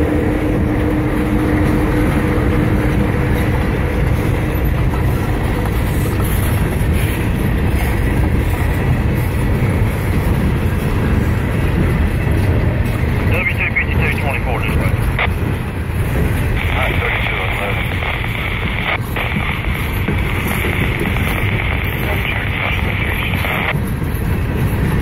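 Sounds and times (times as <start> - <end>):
diesel locomotive hum: 0.0 - 25.0
train wheels rumbling on rails: 0.0 - 25.0.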